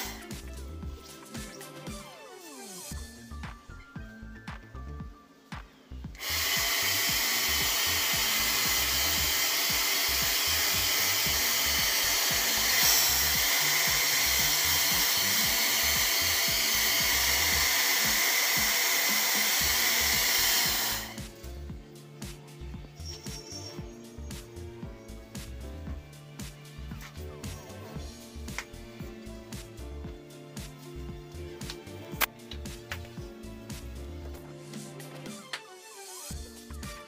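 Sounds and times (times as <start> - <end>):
hair dryer blowing: 0.0 - 0.5, 6.1 - 21.4.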